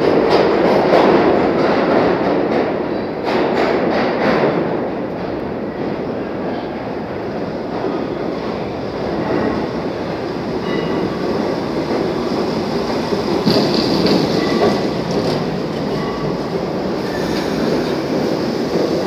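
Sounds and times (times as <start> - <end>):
subway train wheels rumbling: 0.0 - 19.0
clicking over rail joints: 11.4 - 17.0
train wheel screech: 13.0 - 18.4.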